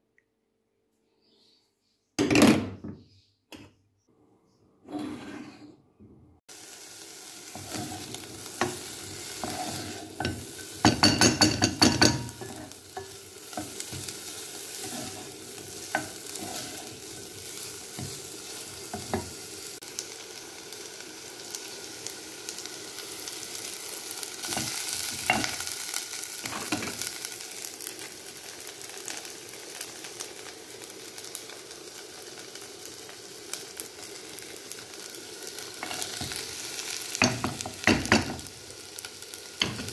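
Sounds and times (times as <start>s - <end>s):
onion sizzling in hot oil: 6.5s - 39.9s
wooden spoon knocking against pan: 10.8s - 12.4s.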